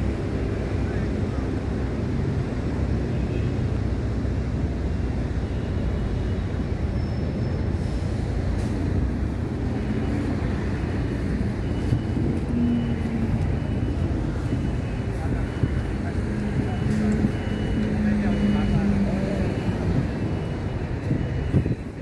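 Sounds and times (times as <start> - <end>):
wind buffeting microphone: 8.9 - 17.9, 18.9 - 22.0.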